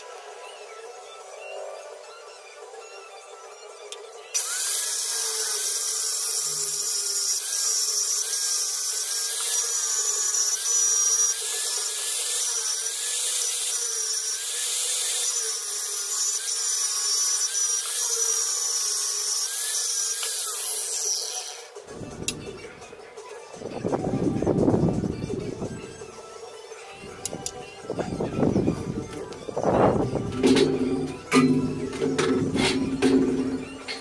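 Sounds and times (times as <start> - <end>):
power tool motor rasping: 4.4 - 21.8.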